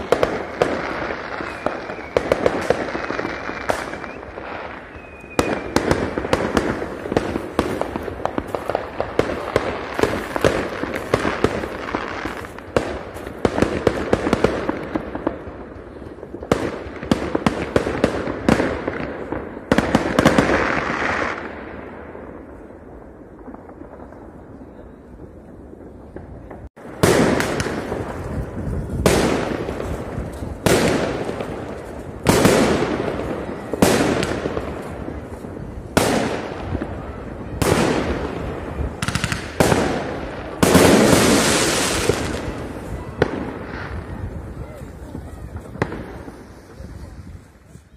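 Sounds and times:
firework whistle: 0:00.0 - 0:06.4
fireworks bangs and crackling: 0:00.0 - 0:47.9.

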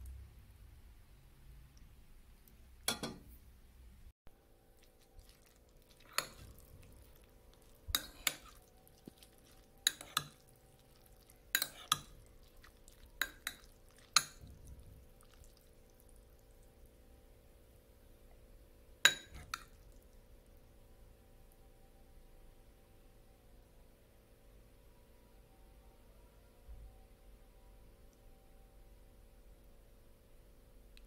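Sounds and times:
faint steady hum: 0:00.0 - 0:31.0
utensil clinking ceramic bowl: 0:06.0 - 0:07.1, 0:07.9 - 0:10.9, 0:19.1 - 0:19.7.

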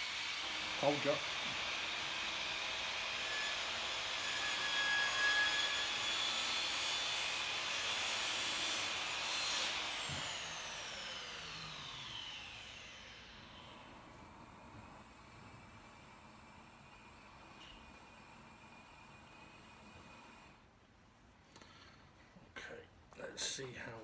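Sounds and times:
power tool motor whining: 0:00.1 - 0:13.8.

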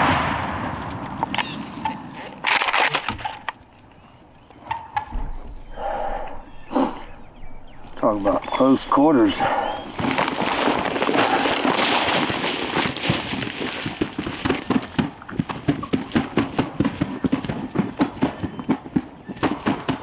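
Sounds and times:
footsteps crunching through dry grass: 0:07.4 - 0:14.6.

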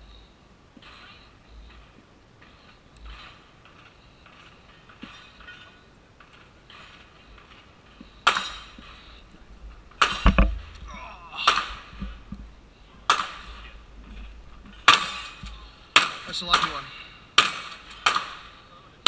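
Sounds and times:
gunshots with echo: 0:14.8 - 0:18.6.

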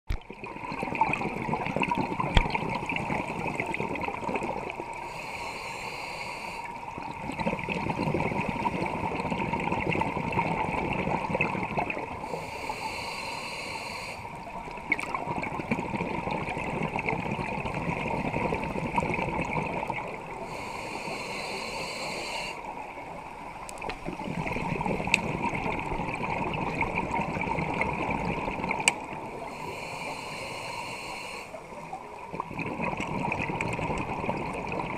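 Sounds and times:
faint steady hum: 0:00.1 - 0:34.9
hissing inhalation: 0:05.0 - 0:06.8, 0:12.2 - 0:14.4, 0:20.4 - 0:22.7, 0:29.4 - 0:31.8
scuba regulator breathing: 0:05.0 - 0:06.9, 0:12.2 - 0:14.5, 0:20.3 - 0:22.8, 0:29.3 - 0:31.9
bubbling exhalation: 0:07.1 - 0:12.3, 0:32.2 - 0:34.9.

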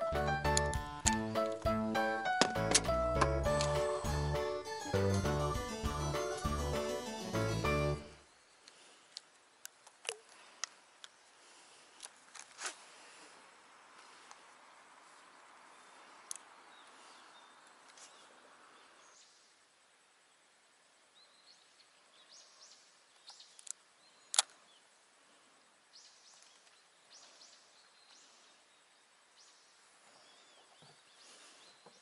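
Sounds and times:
soft hiss: 0:08.0 - 0:32.0.

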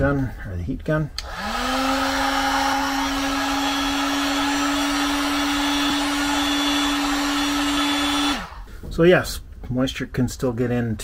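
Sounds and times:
heat gun fan humming: 0:01.1 - 0:08.9.

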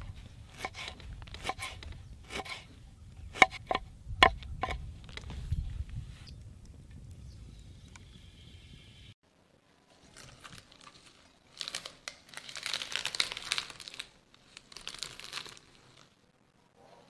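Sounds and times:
hands crumpling herb leaves: 0:10.1 - 0:16.1.

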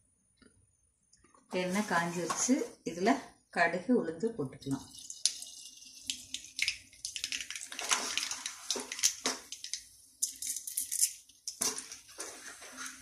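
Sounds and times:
seeds popping and crackling: 0:04.8 - 0:12.1
seeds sizzling in hot oil: 0:04.8 - 0:12.9.

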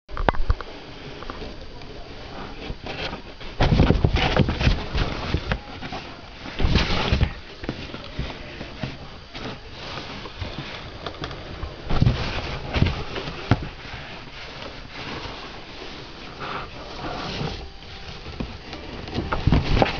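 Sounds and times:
cat scratching in cardboard box: 0:02.4 - 0:10.9.

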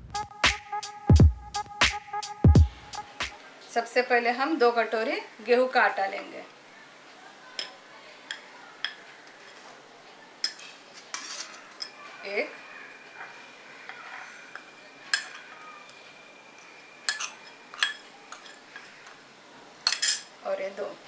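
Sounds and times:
metal spoon clinking against bowls: 0:10.4 - 0:12.0, 0:13.8 - 0:16.0, 0:16.6 - 0:19.2, 0:19.8 - 0:20.3.

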